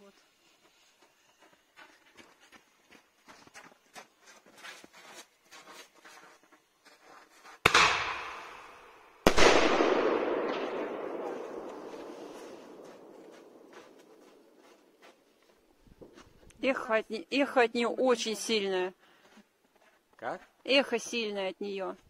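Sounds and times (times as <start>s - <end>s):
firework bangs with echo: 7.6s - 14.0s.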